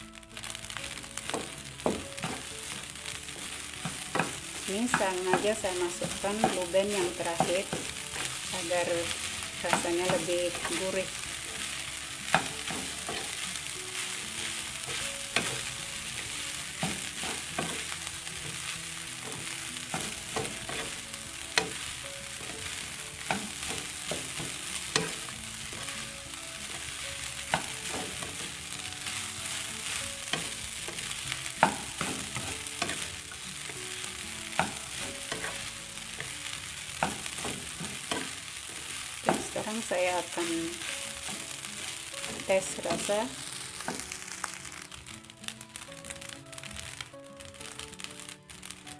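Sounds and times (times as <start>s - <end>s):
rice sizzling in a wok: 0.0s - 48.9s
spatula scraping and knocking pan: 1.2s - 26.0s.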